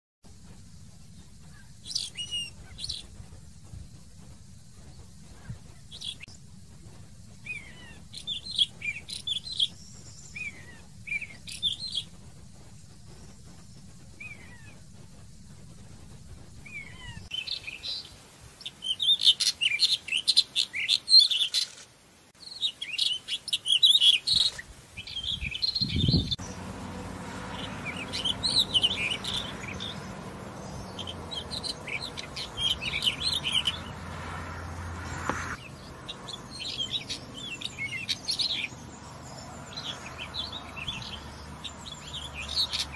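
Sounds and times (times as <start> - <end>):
bird singing warbling phrases: 7.4 - 12.1, 22.4 - 42.9.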